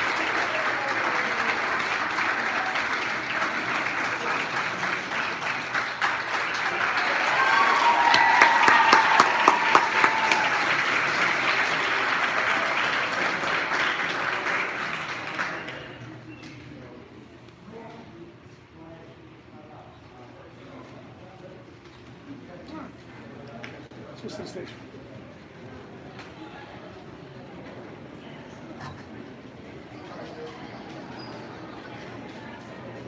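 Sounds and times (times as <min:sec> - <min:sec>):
audience applauding: 0:00.0 - 0:16.3.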